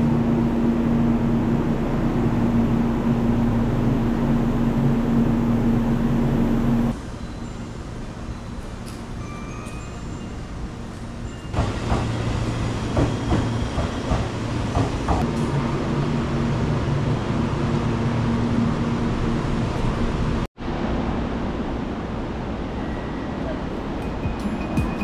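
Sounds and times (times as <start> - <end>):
train rumble: 0.0 - 25.0
train wheels clicking over rail joints: 11.5 - 15.6.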